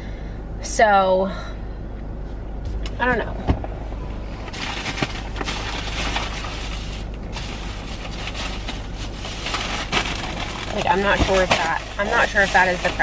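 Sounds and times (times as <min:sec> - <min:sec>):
low hum inside car: 0:00.0 - 0:13.0
rustling and crackling rummaging: 0:04.4 - 0:13.0.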